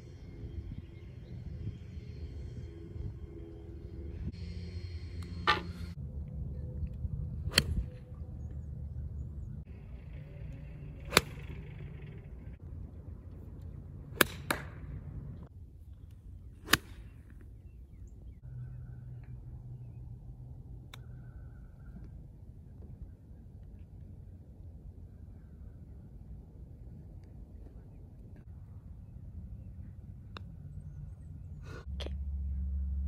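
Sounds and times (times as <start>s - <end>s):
golf clubs striking balls: 10.5s - 12.3s, 13.5s - 15.4s.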